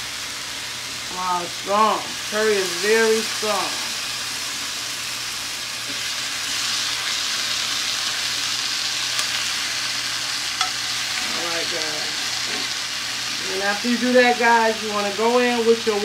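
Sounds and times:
chicken sizzling in oil: 0.0 - 16.0
tongs clicking against pan: 10.6 - 10.8.

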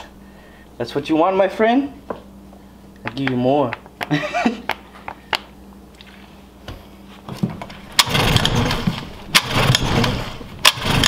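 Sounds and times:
pull starter: 7.9 - 11.0
outboard motor sputtering: 8.0 - 11.0.

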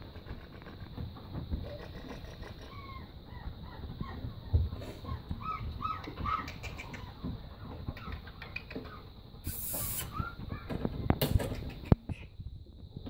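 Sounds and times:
puppies yipping and squeaking: 1.6 - 10.8.

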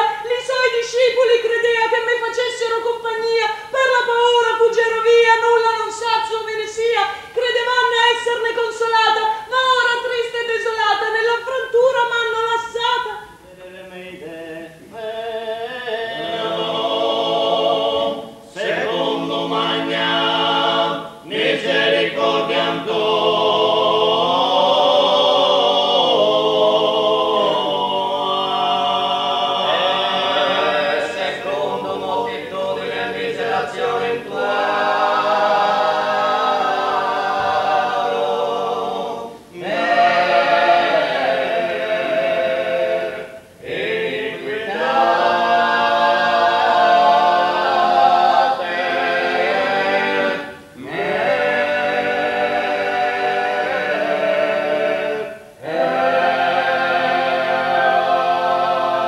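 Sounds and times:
men singing a cappella: 13.3 - 59.0.

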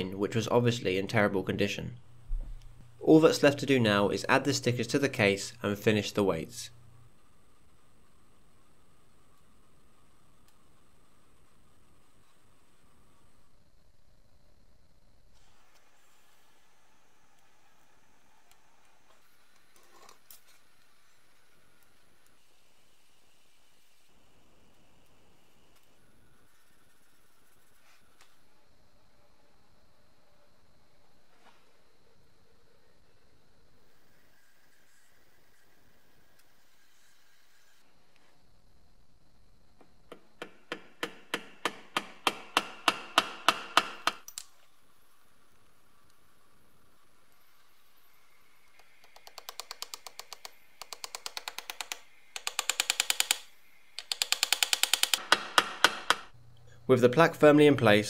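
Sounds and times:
small hammer tapping metal: 40.1 - 44.4, 54.0 - 56.3.

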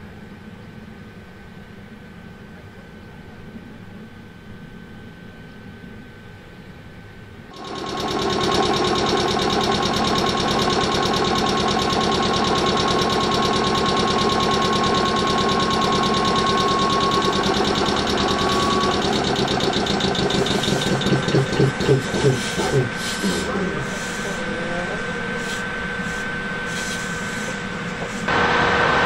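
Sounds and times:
steady whine: 0.0 - 29.0
train air compressor knocking: 7.6 - 29.0.

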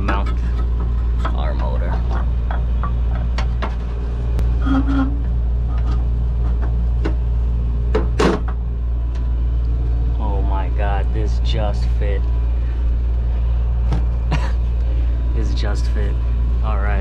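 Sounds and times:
clicks and knocks of fan motor handling: 0.0 - 4.5, 5.2 - 7.3
steady low hum: 0.0 - 17.0.

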